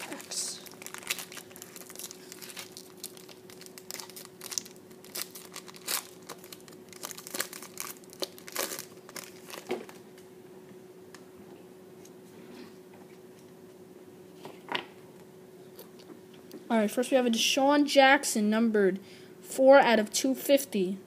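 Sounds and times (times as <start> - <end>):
foil wrapper crinkling and tearing: 0.0 - 10.0.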